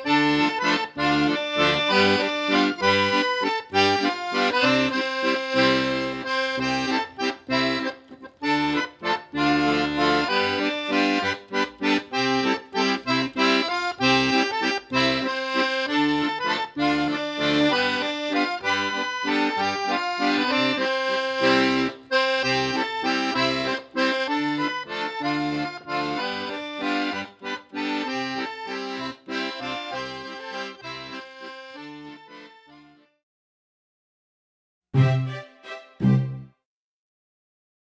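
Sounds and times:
music with quick short notes: 0:35.0 - 0:36.6.

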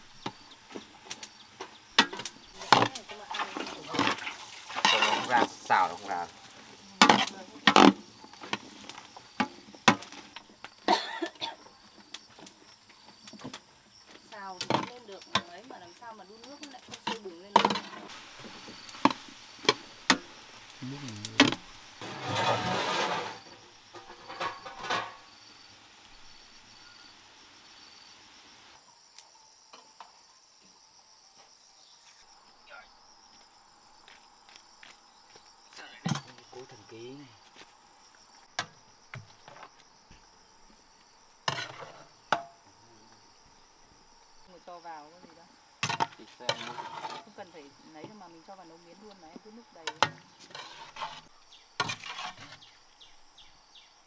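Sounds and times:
food sizzling: 0:00.0 - 0:13.6, 0:14.2 - 0:29.2, 0:32.3 - 0:54.0
insects buzzing: 0:00.0 - 0:54.0
ladle scraping pan: 0:02.1 - 0:05.7, 0:21.4 - 0:25.2, 0:41.5 - 0:42.5, 0:45.8 - 0:47.4, 0:49.9 - 0:52.8.

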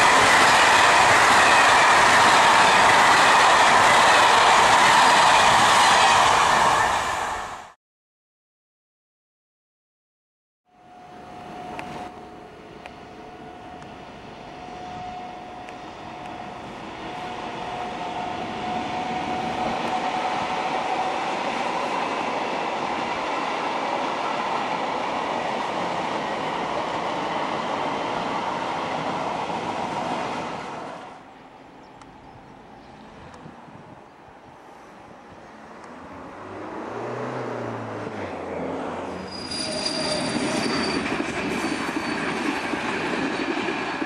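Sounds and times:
high-speed train passing: 0:00.0 - 0:07.8, 0:10.7 - 0:44.0
thin whine: 0:10.7 - 0:20.2.

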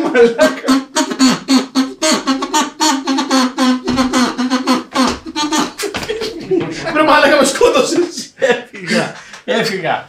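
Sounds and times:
duck call quacks: 0:00.4 - 0:06.0.

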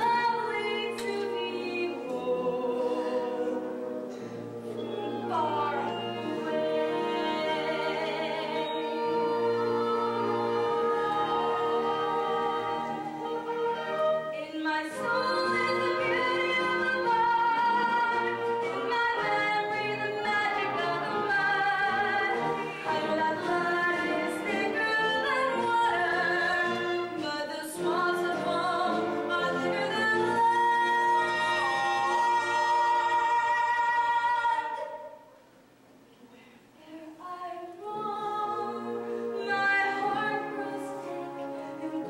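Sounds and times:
woman singing: 0:00.0 - 0:03.8, 0:05.0 - 0:35.2, 0:36.8 - 0:42.0
instrumental accompaniment: 0:00.0 - 0:33.4.

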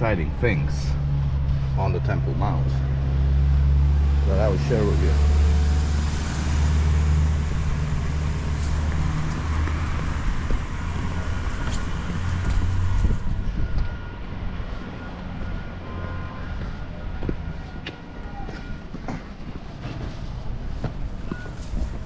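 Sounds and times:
vehicle engine rumbling: 0:00.0 - 0:22.0.

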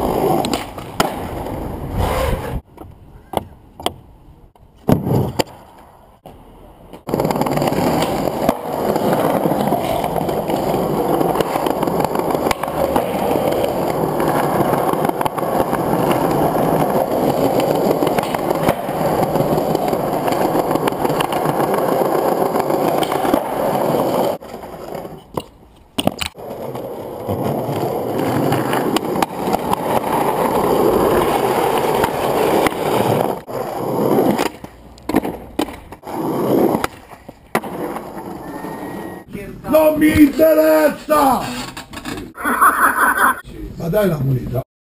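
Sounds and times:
skateboard wheels rolling: 0:00.0 - 0:43.4
skateboard clacks: 0:06.2 - 0:33.5.

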